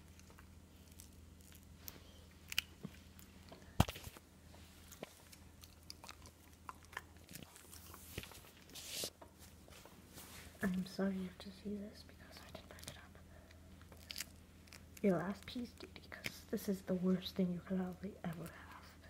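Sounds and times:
dog chewing jerky: 4.9s - 8.2s.

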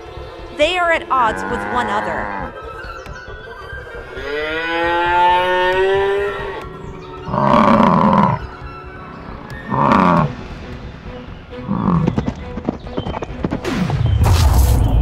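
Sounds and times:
bison bellowing: 1.1s - 2.6s, 4.1s - 8.6s, 9.6s - 10.4s, 11.6s - 12.2s
cow mooing: 1.1s - 2.6s, 4.1s - 8.5s, 9.6s - 10.3s.

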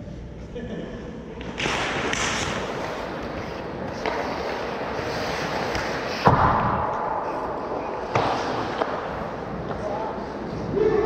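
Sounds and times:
hockey stick or puck knock: 1.4s - 4.7s, 5.6s - 7.1s, 8.0s - 9.8s
skates scraping on ice: 1.6s - 11.0s.

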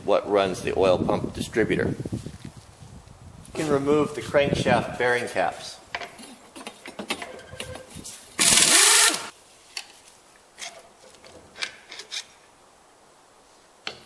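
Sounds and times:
metal clinks of bolts and tools: 6.6s - 7.9s
air tool burst: 8.4s - 9.3s.

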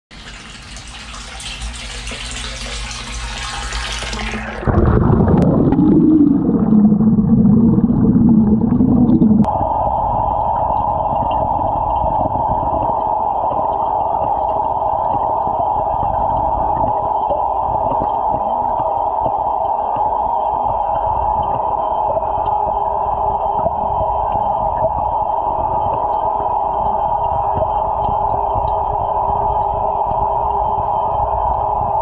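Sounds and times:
water pouring from hose: 0.1s - 6.5s
underwater hum: 0.1s - 32.0s.

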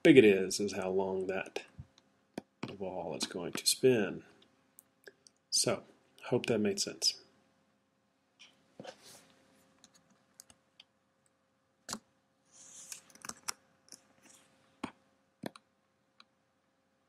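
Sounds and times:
faint steady hum: 0.0s - 17.0s
mouse and keyboard clicks: 12.8s - 15.7s.

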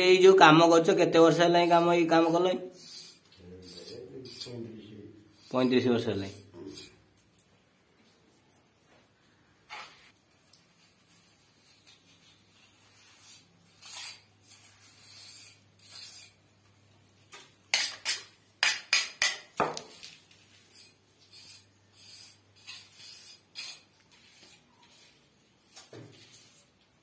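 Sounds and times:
trowel scraping mortar: 11.5s - 16.4s, 17.3s - 19.9s, 20.5s - 26.8s.

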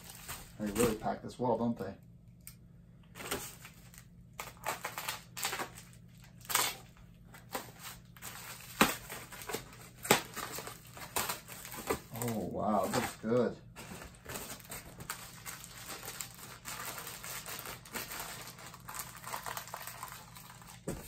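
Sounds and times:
packing material rustling: 0.0s - 1.1s, 3.2s - 21.0s.

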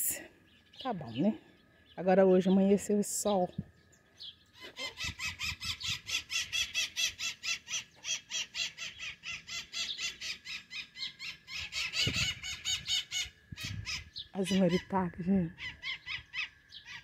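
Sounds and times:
parrots screeching: 4.6s - 14.9s, 15.6s - 17.0s.

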